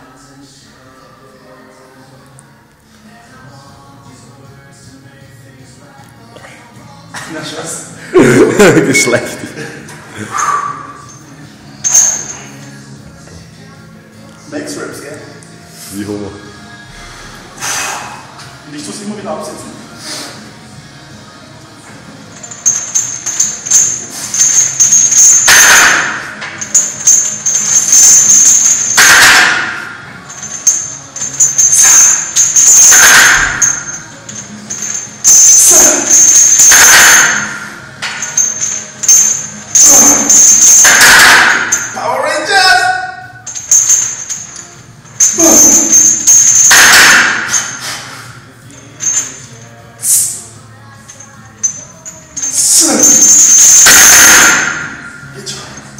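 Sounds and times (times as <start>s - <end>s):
chains clinking and jingling: 11.0s - 12.7s, 22.3s - 29.2s, 30.2s - 42.0s, 43.4s - 48.1s, 48.8s - 50.4s, 51.0s - 55.9s
sharp breath: 17.6s - 18.3s.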